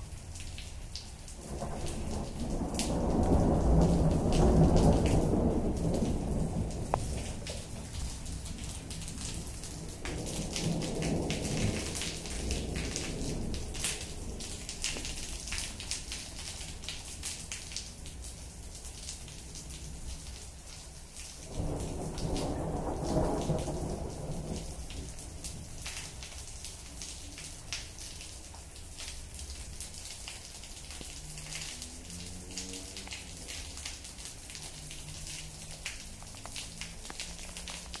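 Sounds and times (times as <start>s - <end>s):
rain falling on concrete: 0.0s - 38.0s
thunder rolling: 1.4s - 15.9s, 21.5s - 26.2s.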